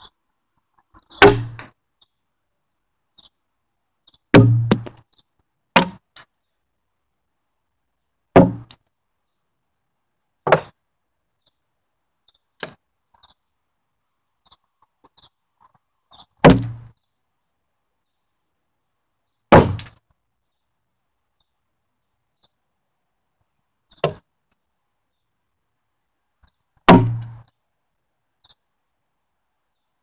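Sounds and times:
blade striking wood: 1.2s - 1.7s, 4.4s - 5.0s, 8.4s - 8.8s, 10.5s - 10.7s, 16.4s - 16.9s, 19.5s - 20.0s, 26.9s - 27.4s.

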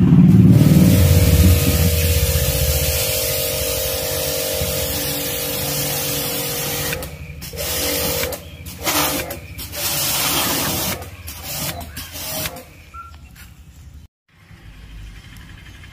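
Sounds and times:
motor humming: 0.3s - 12.6s
pressure washer jet hissing: 0.3s - 12.6s.

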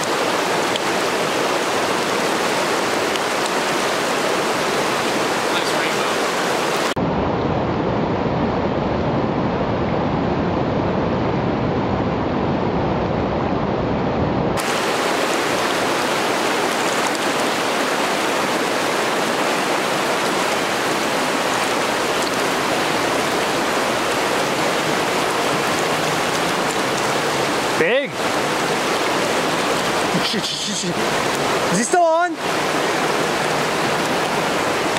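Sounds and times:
river water rushing over rocks: 0.0s - 7.0s, 14.6s - 34.9s.

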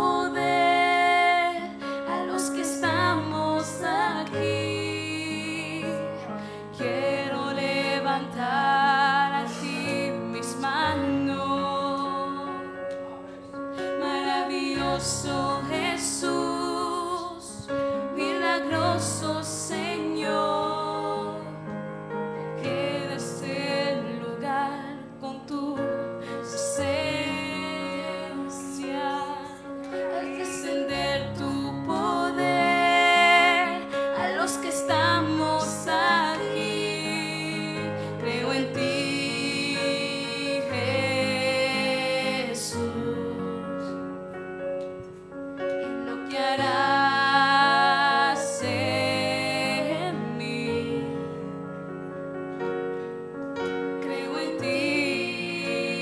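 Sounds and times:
woman singing: 0.0s - 12.9s, 13.8s - 21.6s, 22.6s - 44.2s, 45.8s - 51.8s, 54.0s - 56.0s
digital piano playing: 0.0s - 56.0s
boy singing into microphone: 26.8s - 43.4s.

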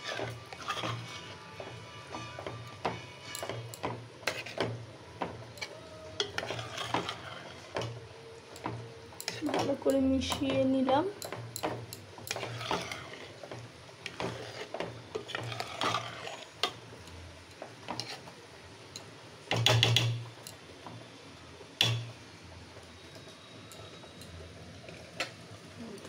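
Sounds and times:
ladle scraping metal pot: 0.0s - 16.8s, 17.8s - 18.3s.

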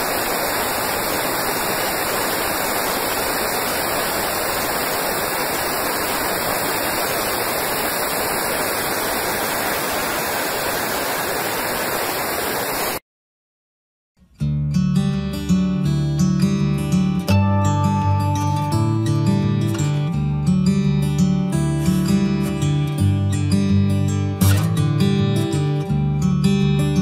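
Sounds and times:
steady static hiss: 0.0s - 13.0s.

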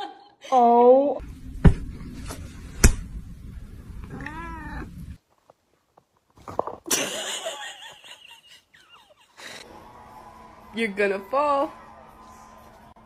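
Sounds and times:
cat meowing: 4.0s - 5.2s.

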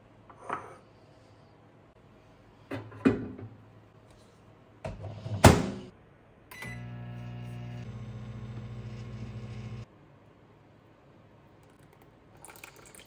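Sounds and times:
microwave humming: 6.5s - 9.9s.

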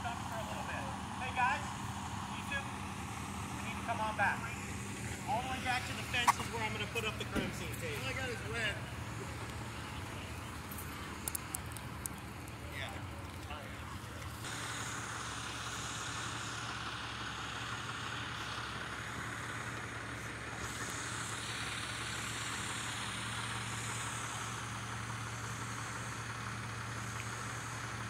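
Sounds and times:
vehicle engines idling: 0.0s - 28.0s.

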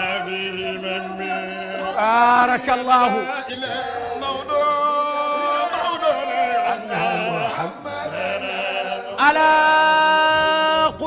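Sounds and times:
man chanting a devotional poem: 0.0s - 5.4s.

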